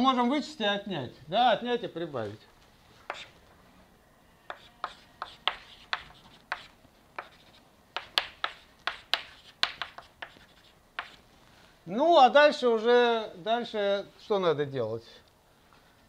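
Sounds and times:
chalk tapping on blackboard: 0:03.1 - 0:03.3, 0:04.5 - 0:11.2.

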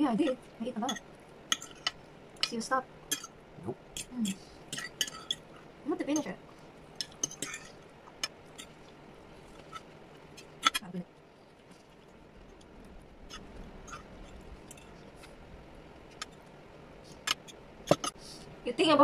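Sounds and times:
forks clinking on plate: 0:04.7 - 0:05.4.

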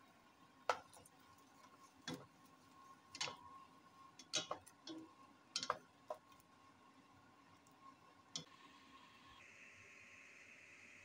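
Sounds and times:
spatula tapping steel pot: 0:00.7 - 0:06.4.

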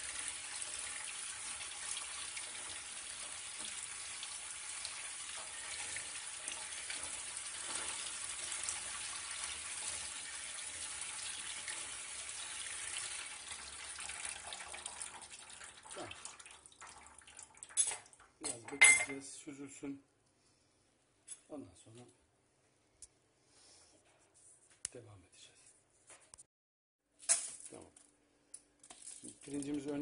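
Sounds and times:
rice rinsed by hand: 0:00.0 - 0:18.2, 0:28.8 - 0:30.0
tap water pouring into sink: 0:00.0 - 0:18.3.

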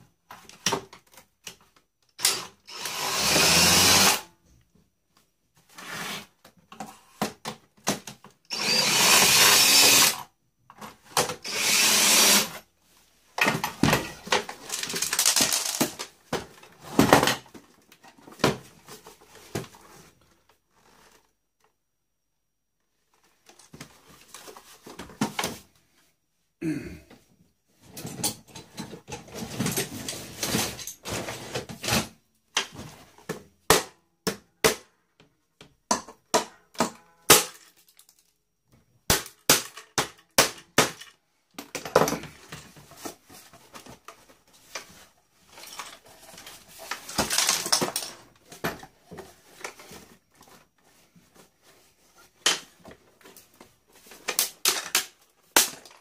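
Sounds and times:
plastic parts clicking and snapping: 0:13.4 - 0:16.1, 0:54.2 - 0:56.0
crackling and rattling: 0:13.4 - 0:17.6.

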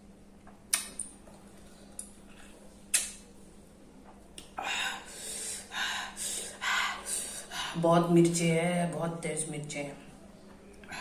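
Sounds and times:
mouth clicks while eating: 0:00.6 - 0:01.2, 0:02.9 - 0:03.2.

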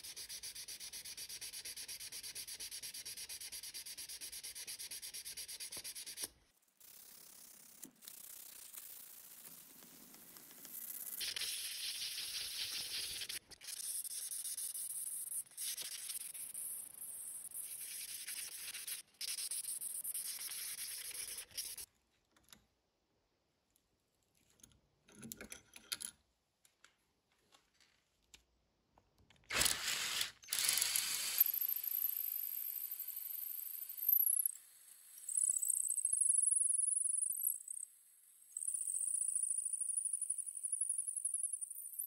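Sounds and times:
sandpaper rasping on steel blade: 0:00.0 - 0:09.3, 0:17.5 - 0:21.9
drill boring into wood: 0:29.5 - 0:32.3.

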